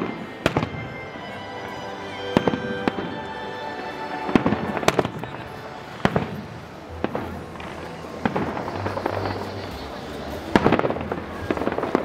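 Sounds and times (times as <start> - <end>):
fireworks bangs: 0.0 - 1.0, 4.3 - 12.0.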